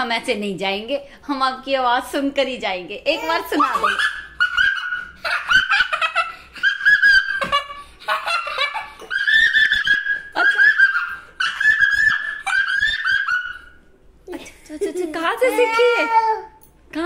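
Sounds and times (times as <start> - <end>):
boy cackling like a witch: 3.6 - 13.8.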